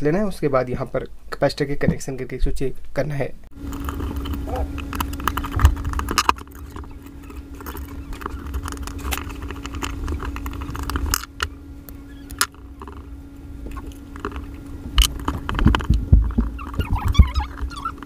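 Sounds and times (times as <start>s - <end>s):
steady background hum: 0.0s - 18.0s
metal parts clicking and knocking: 3.7s - 11.5s.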